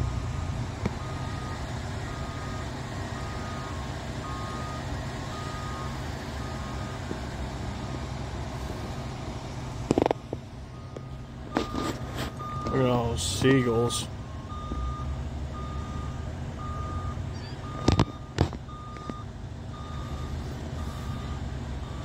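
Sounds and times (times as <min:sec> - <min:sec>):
backup alarm beeping: 0:01.0 - 0:07.2, 0:10.8 - 0:22.0.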